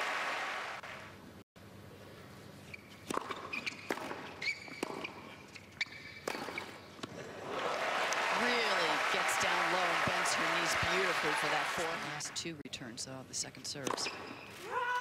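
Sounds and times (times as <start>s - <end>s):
sneakers squeaking: 2.6s - 7.0s, 13.9s - 15.0s
ball bouncing: 3.0s - 5.2s, 5.8s - 7.1s, 13.8s - 14.4s
racket striking tennis ball: 3.0s - 5.2s, 5.8s - 7.1s, 13.8s - 14.6s.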